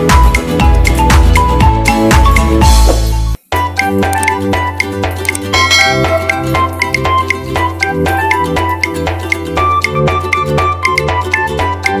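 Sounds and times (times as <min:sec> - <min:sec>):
background music with steady beat: 0:00.0 - 0:12.0
sustained bass notes: 0:05.6 - 0:08.0.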